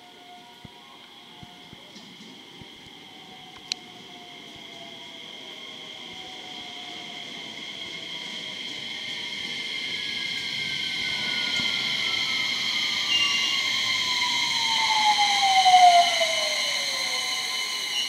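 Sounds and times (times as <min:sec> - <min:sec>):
train motor whine falling in pitch: 0:10.3 - 0:18.0.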